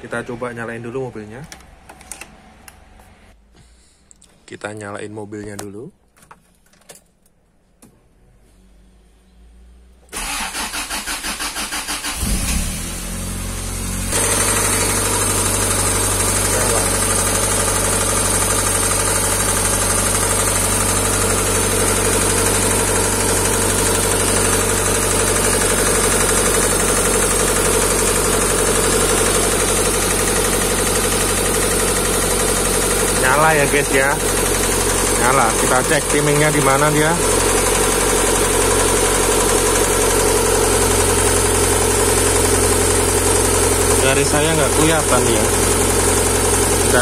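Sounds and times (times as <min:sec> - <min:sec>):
starter cranking engine: 0:10.1 - 0:12.6, 0:14.2 - 0:40.2
car engine idling: 0:10.1 - 0:47.0.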